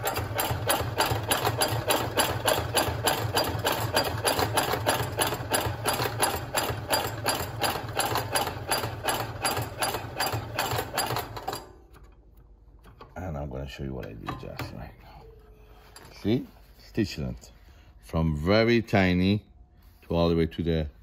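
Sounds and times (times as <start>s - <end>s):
sewing machine stitching: 0.0s - 11.8s.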